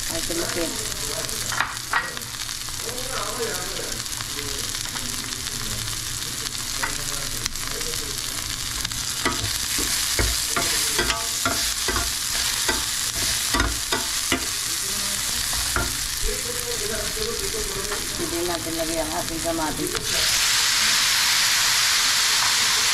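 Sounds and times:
onion sizzling in oil: 0.0 - 22.9
metal spatula scraping pan: 9.3 - 16.0.

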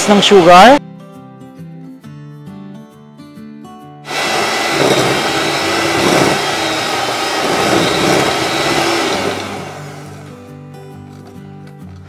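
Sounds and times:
beaters churning in glass bowl: 4.1 - 10.2
electric hand mixer whine: 4.1 - 10.4.

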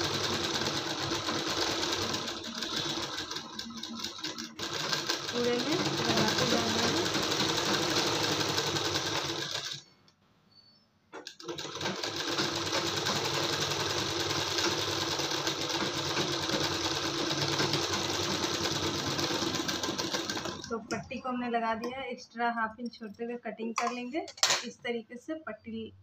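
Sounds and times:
sewing machine running: 0.0 - 9.9, 11.2 - 21.0.

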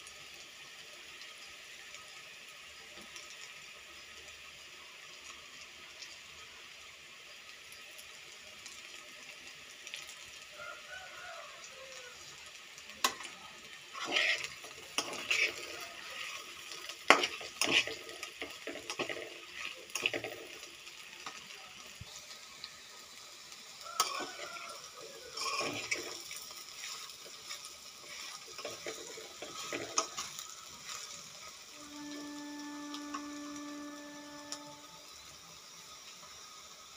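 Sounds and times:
faint frying sizzle: 0.0 - 36.9
spatula scraping metal pan: 13.9 - 20.3, 25.4 - 31.2
steady humming tone: 29.3 - 35.6.

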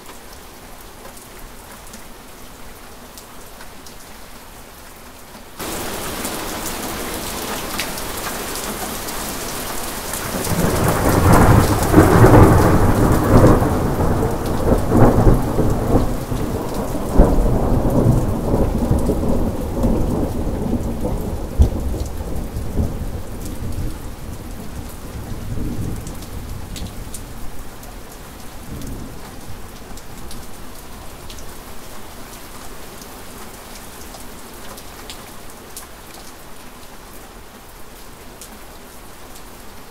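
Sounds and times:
steady rain: 0.0 - 39.9
thunder rumbling and cracking: 10.0 - 27.2.

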